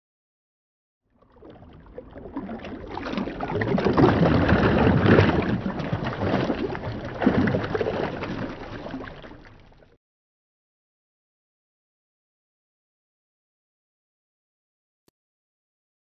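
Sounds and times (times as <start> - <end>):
swirling splashing water: 1.2 - 9.9.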